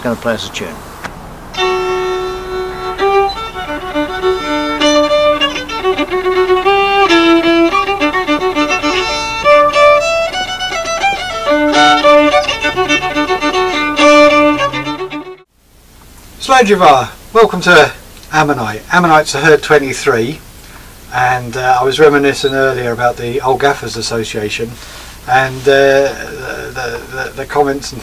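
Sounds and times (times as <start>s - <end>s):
fiddle playing a tune: 1.5s - 15.5s, 21.1s - 23.8s, 25.3s - 27.6s.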